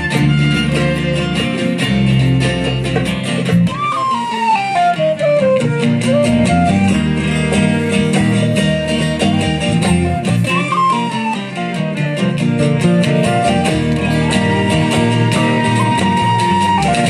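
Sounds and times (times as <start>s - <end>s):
flute melody: 0.0s - 2.7s, 3.4s - 17.0s
strummed acoustic guitars: 0.0s - 17.0s
violin melody: 3.6s - 17.0s
steady drum beat: 5.8s - 10.8s.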